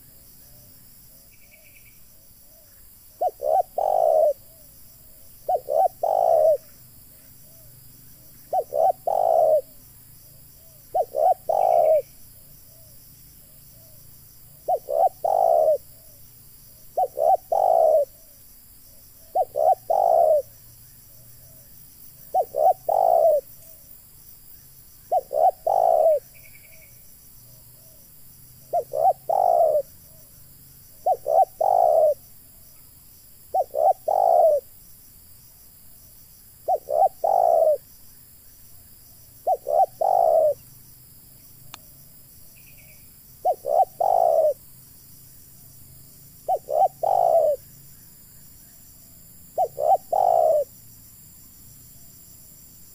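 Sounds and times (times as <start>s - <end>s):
dove cooing: 2.5s - 6.7s, 7.4s - 9.8s, 10.6s - 12.1s, 14.6s - 16.2s, 17.0s - 18.4s, 19.2s - 20.5s, 22.3s - 23.8s, 25.1s - 26.9s, 28.7s - 30.2s, 31.0s - 32.2s, 33.5s - 34.7s, 36.6s - 37.8s, 39.4s - 40.6s, 43.4s - 44.6s, 46.5s - 47.6s, 49.6s - 50.7s.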